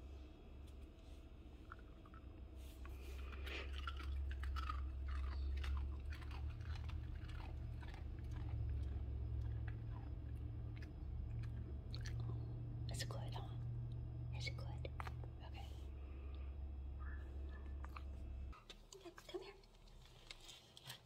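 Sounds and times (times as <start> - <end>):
steady low hum: 0.0 - 20.6
dog crunching a treat: 1.6 - 12.7, 17.8 - 21.0.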